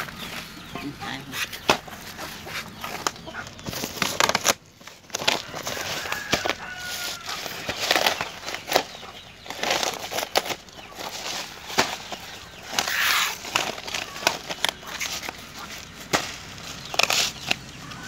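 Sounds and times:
plastic sacks crinkling: 1.6s - 18.0s.

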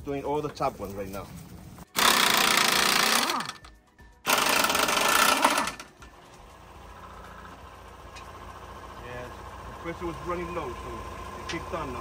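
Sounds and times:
impact wrench hammering: 2.0s - 3.7s, 4.3s - 6.0s.

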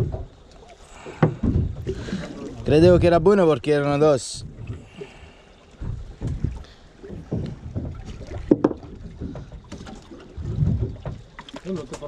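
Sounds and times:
water slapping boat hull: 0.0s - 12.0s
knocks on boat deck: 1.2s - 1.8s, 7.2s - 9.9s.

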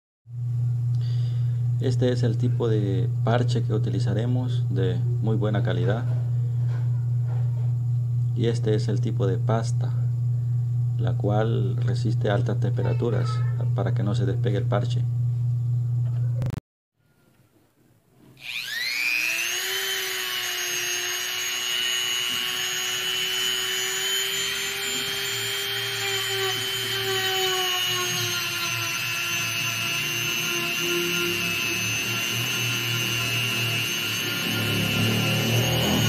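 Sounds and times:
rotary tool high whine: 18.3s - 36.0s.

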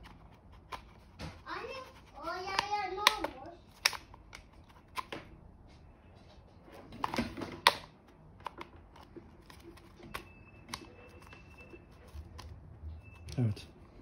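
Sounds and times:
plastic clicks and snaps: 2.6s - 5.2s.

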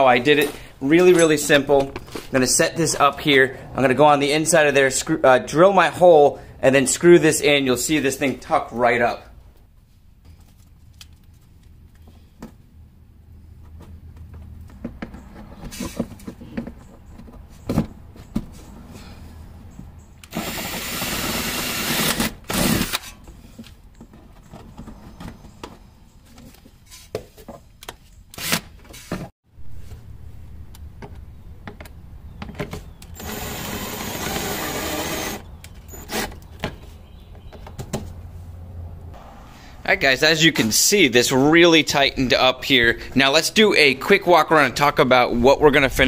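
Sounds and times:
handling clicks and knocks: 13.6s - 18.6s, 30.7s - 33.2s
power drill running: 20.3s - 23.0s, 33.2s - 36.2s.

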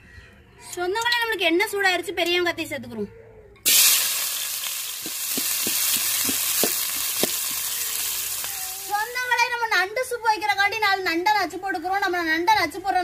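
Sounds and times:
onions sizzling in hot oil: 3.7s - 9.4s
spoon knocking against pan: 5.0s - 7.6s.

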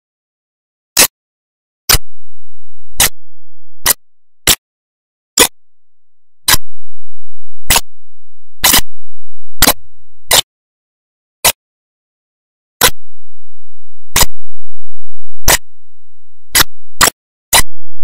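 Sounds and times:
sharp clicks: 7.7s - 7.9s, 12.8s - 13.0s, 14.2s - 14.4s, 16.6s - 17.7s.

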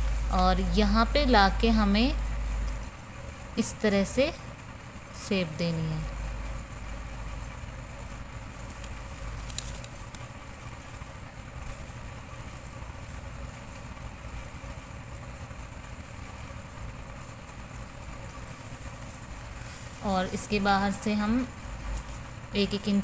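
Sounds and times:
low background rumble with hiss: 0.0s - 23.0s.

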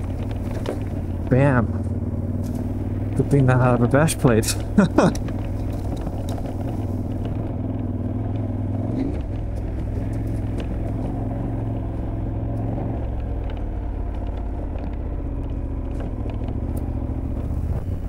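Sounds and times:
motorcycle engine running: 0.0s - 18.0s
small clicks: 4.5s - 17.7s.

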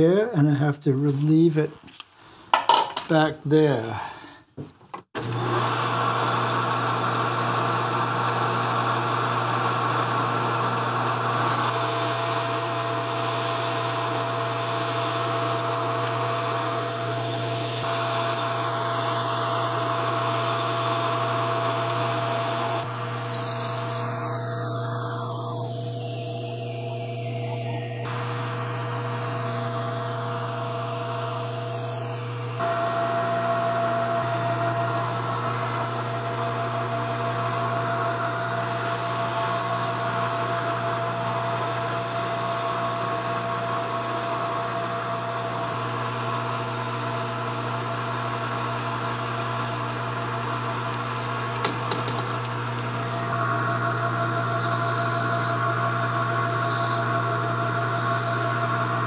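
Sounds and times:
metal lathe running: 5.2s - 29.8s, 41.4s - 55.5s.

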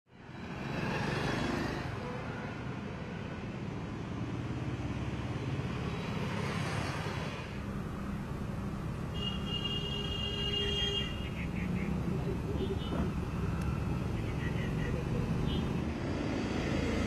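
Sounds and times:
motorcycles passing: 10.6s - 17.0s.

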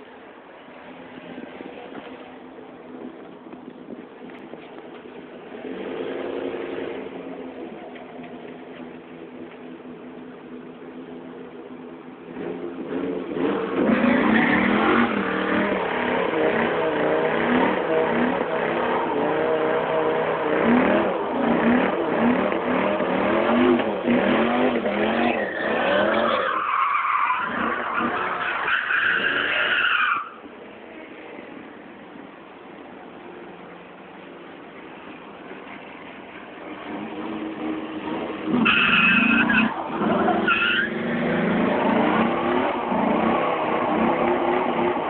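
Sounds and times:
truck engine idling and revving: 0.0s - 45.0s
tyres spinning on pavement: 13.3s - 31.2s, 34.8s - 45.0s
loud tyre squeal: 13.5s - 30.5s, 37.4s - 45.0s.

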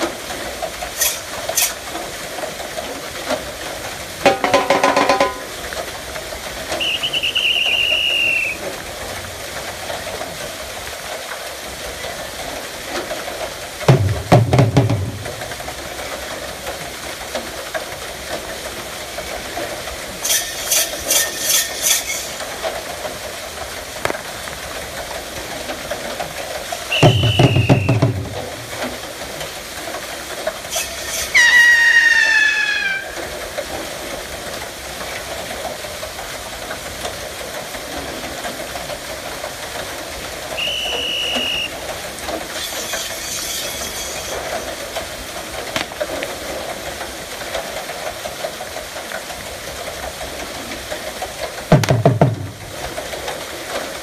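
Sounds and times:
water wheel rushing hiss: 0.0s - 54.0s
short high tones: 6.8s - 8.6s, 40.6s - 41.7s.

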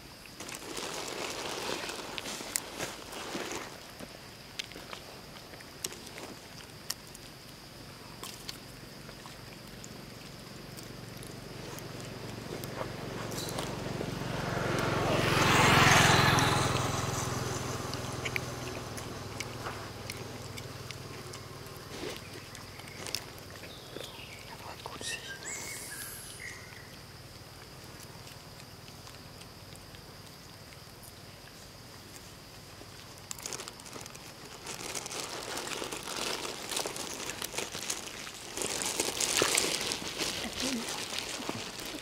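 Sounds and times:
crinkling rustle with clicks: 0.3s - 7.6s, 18.2s - 25.0s, 27.8s - 42.0s
vehicle passing: 11.4s - 22.1s.

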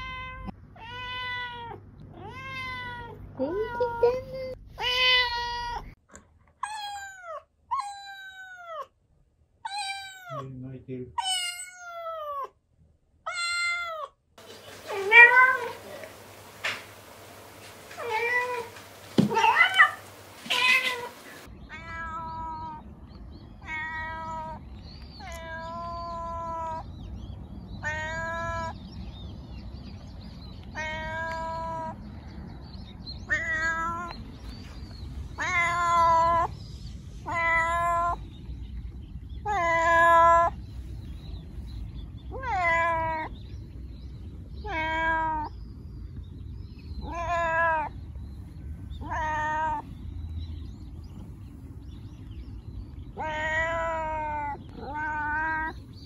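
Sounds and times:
cat meowing: 0.0s - 6.0s, 6.6s - 8.9s, 9.6s - 10.4s, 11.2s - 12.5s, 13.3s - 16.9s, 17.8s - 22.8s, 23.6s - 24.6s, 25.2s - 26.9s, 27.8s - 28.8s, 30.7s - 32.0s, 33.3s - 34.2s, 35.4s - 36.5s, 37.2s - 38.2s, 39.4s - 40.6s, 42.3s - 43.3s, 44.6s - 45.6s, 47.0s - 48.0s, 49.0s - 49.9s, 53.1s - 55.9s
low background noise: 0.0s - 56.0s.

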